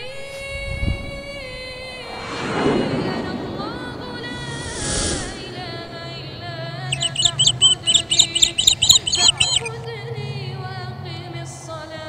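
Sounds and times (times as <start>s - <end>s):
bird chirping: 6.8s - 9.8s.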